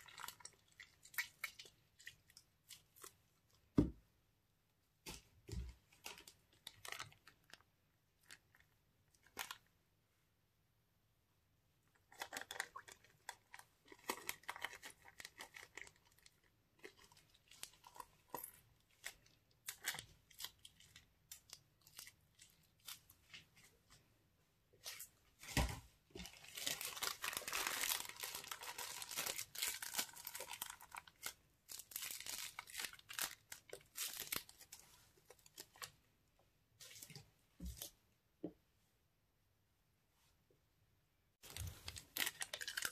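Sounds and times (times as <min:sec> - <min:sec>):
plastic bag crinkling: 0:26.2 - 0:35.9, 0:41.4 - 0:42.9.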